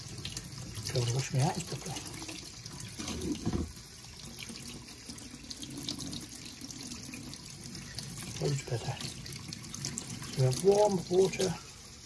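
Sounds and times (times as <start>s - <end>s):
tap running into steel sink: 3.0s - 3.8s.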